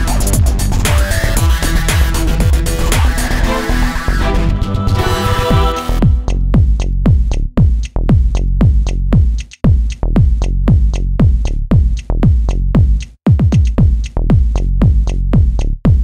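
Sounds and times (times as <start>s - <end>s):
kick drum beat: 0.0s - 3.3s, 5.5s - 16.0s
electronic dance music: 0.0s - 6.8s.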